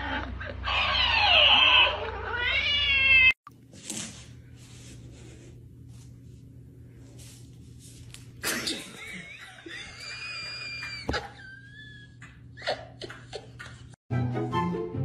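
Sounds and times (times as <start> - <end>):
person laughing and squealing: 0.0 - 2.6, 8.8 - 14.0
steady low hum: 3.5 - 10.0
music: 14.1 - 15.0.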